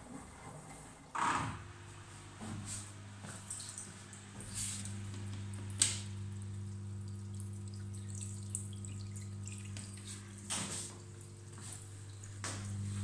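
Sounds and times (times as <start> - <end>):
steady low hum: 0.0 - 13.0
drain water pouring into sink: 5.5 - 13.0.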